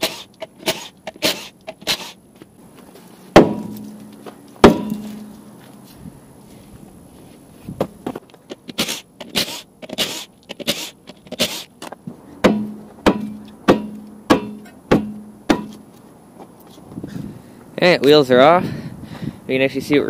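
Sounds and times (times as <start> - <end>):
impact wrench hammering: 3.4 - 4.0, 4.6 - 5.3, 12.4 - 15.8
hammer blows on wheel: 3.4 - 5.3, 12.4 - 15.8.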